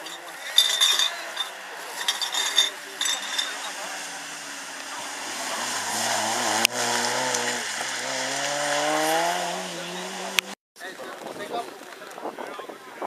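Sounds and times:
car engine revving: 0:02.8 - 0:10.6.

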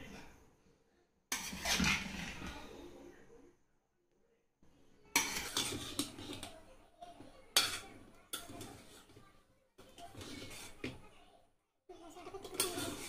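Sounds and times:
metal ladle clanking in a pot: 0:05.2 - 0:06.6, 0:07.5 - 0:09.2, 0:09.9 - 0:11.0, 0:12.4 - 0:13.0.

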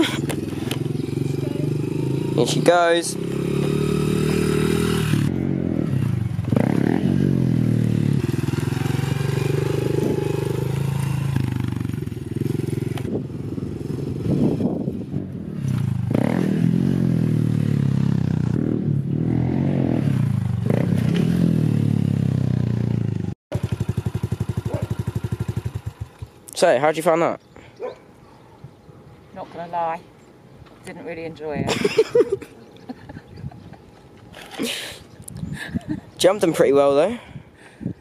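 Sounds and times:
small motorbike engine revving: 0:00.0 - 0:26.4.

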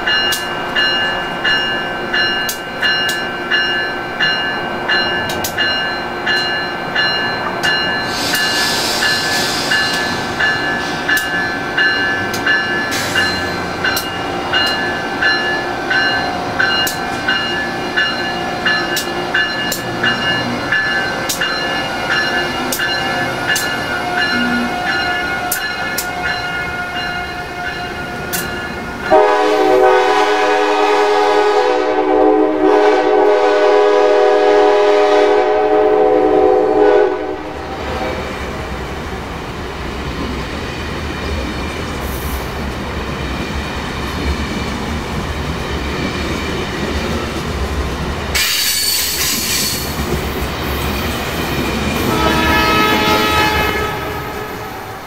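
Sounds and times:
train wheels clicking over rail joints: 0:07.4 - 0:26.5, 0:27.8 - 0:29.2, 0:41.1 - 0:52.1
train horn blast: 0:29.1 - 0:38.4, 0:52.0 - 0:55.0.

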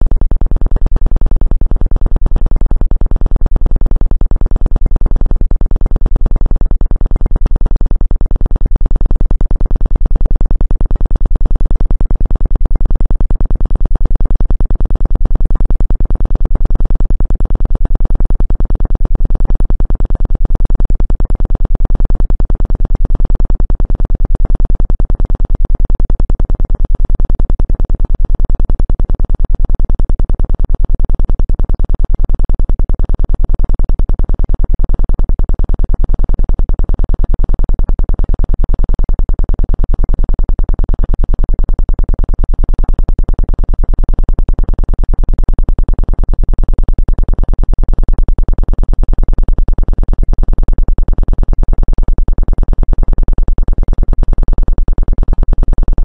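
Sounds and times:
rapidly pulsing low electronic tone: 0:00.0 - 0:56.0.

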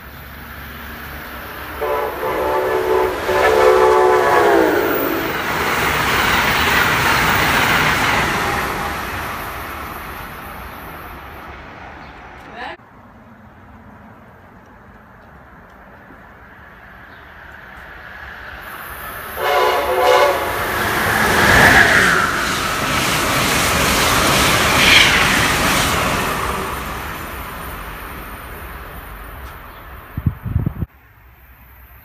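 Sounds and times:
train wheel and rail noise: 0:00.0 - 0:32.0
train horn blast: 0:01.8 - 0:05.5, 0:19.4 - 0:21.7.

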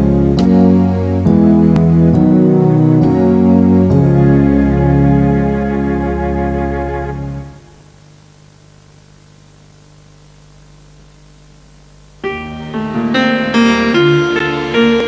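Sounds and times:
music with picked notes: 0:00.0 - 0:07.7, 0:12.2 - 0:15.0
organ chord: 0:00.0 - 0:08.0, 0:12.0 - 0:15.0
faint hiss with low hum: 0:00.0 - 0:15.0.

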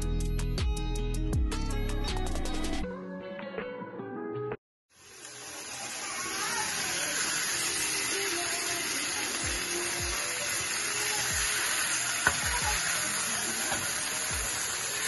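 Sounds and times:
steaks sizzling in frying pan: 0:05.0 - 0:15.0.

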